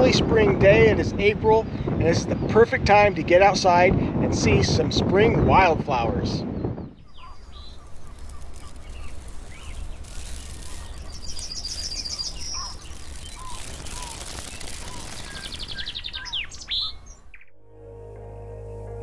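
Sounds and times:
small birds chirping: 6.8 - 17.5
fast bird trill: 7.0 - 17.4
music: 17.4 - 19.0.

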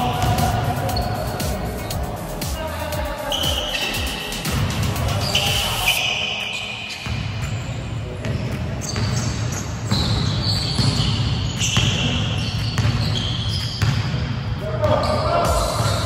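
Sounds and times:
sneakers squeaking: 0.0 - 16.0
basketball bouncing on wood floor: 9.9 - 14.2.

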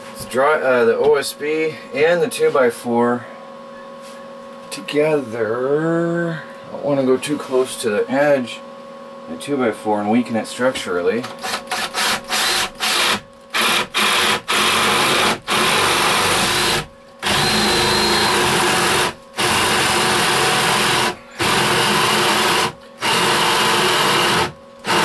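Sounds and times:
power drill boring wood: 11.4 - 25.0.

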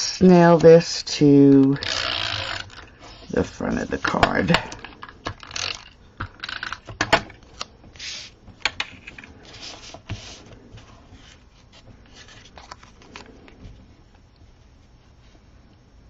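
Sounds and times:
paper rustling and rubbing: 8.0 - 13.8.

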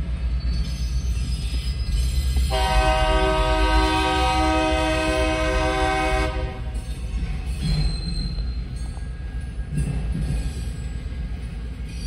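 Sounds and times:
train rumbling: 0.0 - 12.0
locomotive air horn chord: 2.5 - 6.8.

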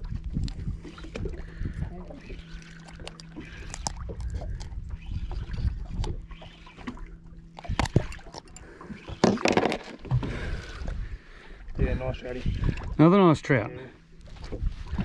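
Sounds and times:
wind on microphone: 0.0 - 2.6, 3.4 - 6.4, 10.2 - 13.0, 14.3 - 15.0
water lapping against hull: 0.0 - 15.0.

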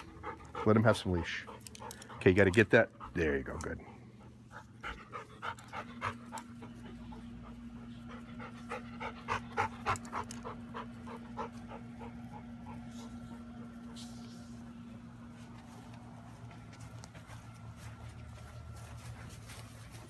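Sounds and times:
dog panting rapidly: 0.0 - 14.7, 17.0 - 20.0
steady low hum: 0.0 - 20.0.

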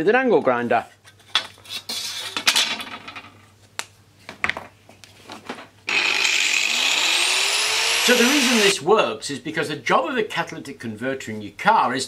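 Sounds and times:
angle grinder spinning up: 5.9 - 8.7.

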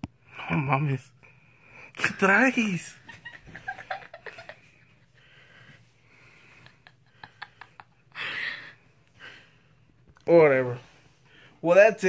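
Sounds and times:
woman's stifled laughter: 3.0 - 5.2.

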